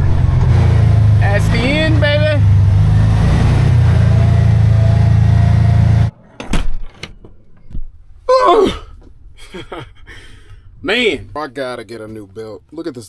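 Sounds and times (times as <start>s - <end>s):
utility vehicle engine running: 0.0s - 6.1s.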